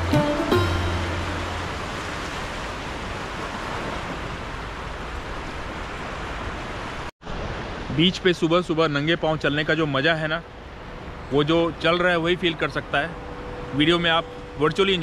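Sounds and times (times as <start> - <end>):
background music: 0.0 - 2.0
sea waves breaking on shore: 0.0 - 15.0.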